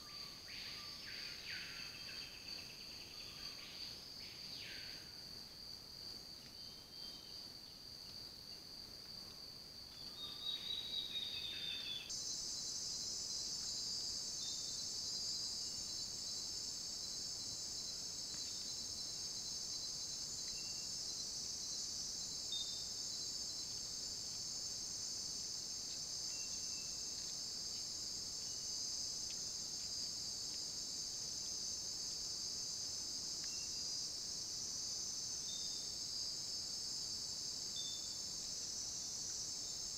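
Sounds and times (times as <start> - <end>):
insect chorus: 0.0 - 39.9.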